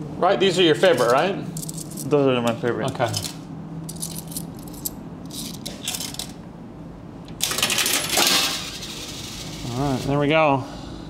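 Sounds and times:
coins clinking into slot: 0:01.6 - 0:02.1, 0:03.1 - 0:06.4, 0:07.4 - 0:09.6.

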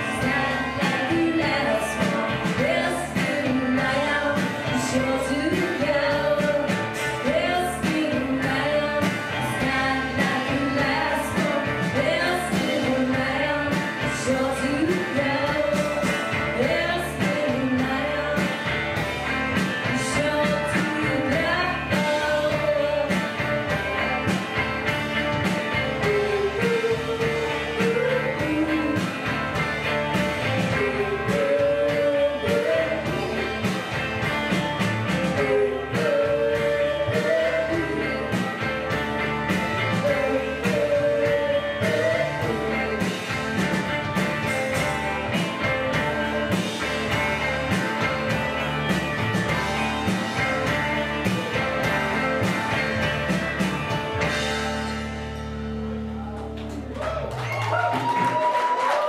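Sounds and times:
person singing: 0:00.0 - 0:19.0, 0:19.6 - 0:24.6, 0:25.6 - 0:44.6, 0:45.3 - 0:47.6
steady drum beat: 0:00.0 - 0:56.6
electric guitars: 0:00.0 - 0:59.0.

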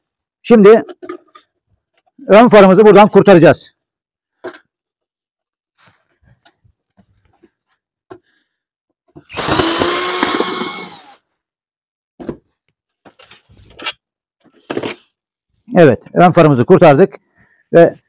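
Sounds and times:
cordless drill running: 0:09.3 - 0:11.2.

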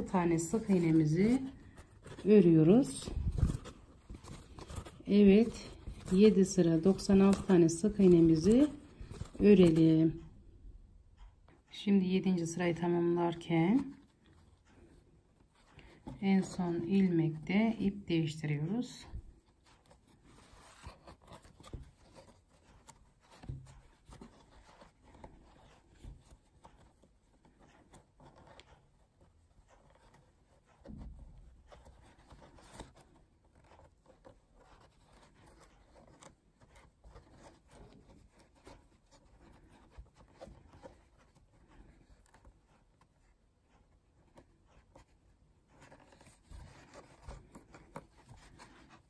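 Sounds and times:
faint rustling: 0:00.0 - 0:10.6, 0:11.2 - 0:49.0.

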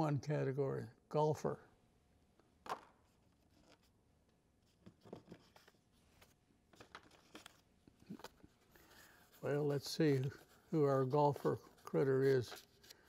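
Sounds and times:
paper cards rustling: 0:04.6 - 0:13.0.

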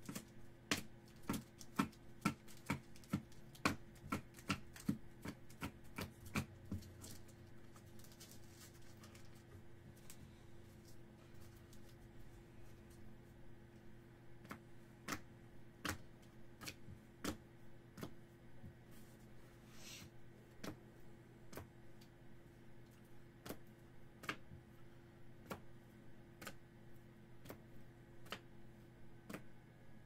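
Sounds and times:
cards in plastic holders clicking: 0:00.0 - 0:06.8, 0:23.4 - 0:24.5, 0:28.2 - 0:28.5
steady low hum: 0:00.0 - 0:30.0.

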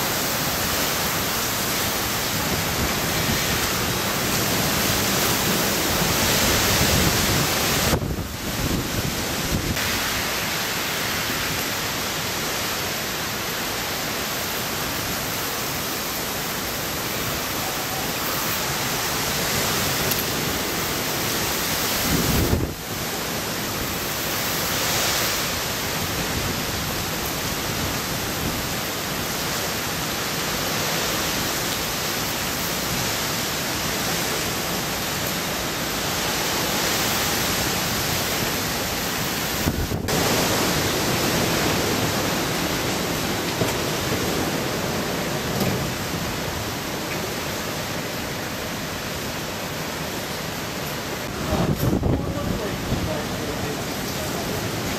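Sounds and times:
heavy rain downpour: 0:00.0 - 0:54.9
wind gust buffeting microphone: 0:21.6 - 0:22.9, 0:39.4 - 0:42.0, 0:51.2 - 0:54.0.

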